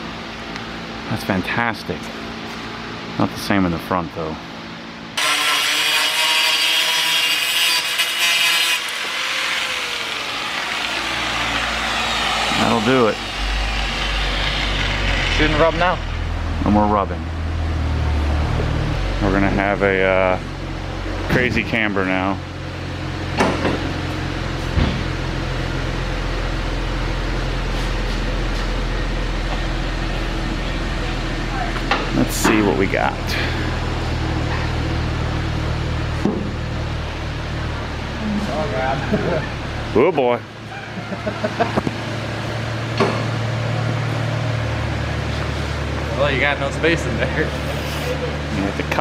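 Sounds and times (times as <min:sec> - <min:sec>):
low machine hum: 0:00.0 - 0:49.0
power tool whirring: 0:05.2 - 0:16.2.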